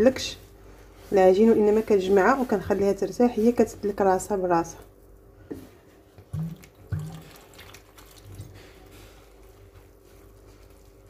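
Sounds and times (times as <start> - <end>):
hands squelching dough: 0.0 - 11.0
water trickling: 6.3 - 8.5.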